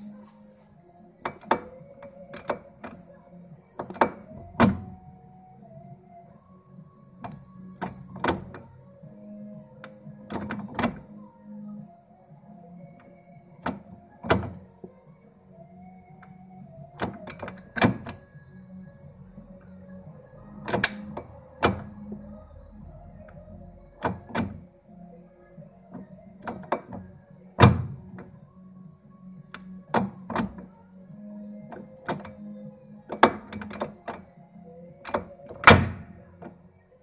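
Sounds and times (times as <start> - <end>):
gearbox shift linkage clicking: 1.2 - 3.0, 3.8 - 4.9, 7.2 - 8.7, 9.8 - 11.1, 17.0 - 18.2, 20.6 - 22.0, 23.3 - 24.6, 26.0 - 28.3, 29.6 - 30.7, 31.8 - 32.4, 33.1 - 34.2, 35.0 - 36.6.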